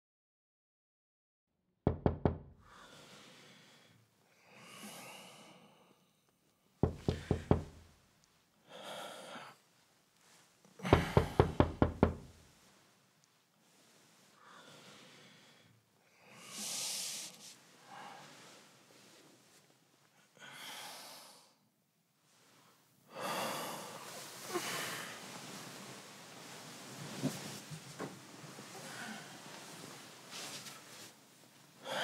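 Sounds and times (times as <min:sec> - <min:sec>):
knocking on a door: 0:01.9 - 0:02.6, 0:06.8 - 0:07.9, 0:10.9 - 0:12.4
man breathing heavily and sighing: 0:06.8 - 0:07.8, 0:10.8 - 0:12.4.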